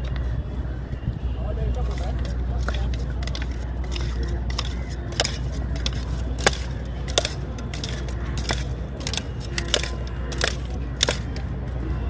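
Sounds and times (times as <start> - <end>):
wooden spoon knocking metal mug: 1.9 - 11.2.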